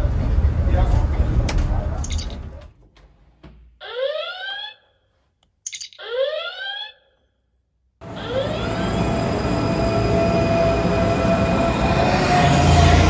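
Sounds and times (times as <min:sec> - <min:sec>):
train noise: 0:00.0 - 0:02.5, 0:08.0 - 0:13.0
communicator badge chirping: 0:02.0 - 0:02.4, 0:05.6 - 0:07.1.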